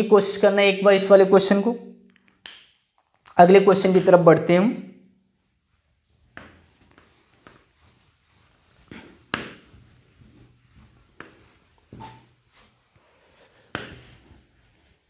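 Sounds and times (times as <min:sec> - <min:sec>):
duster rubbing on whiteboard: 0:05.5 - 0:15.0.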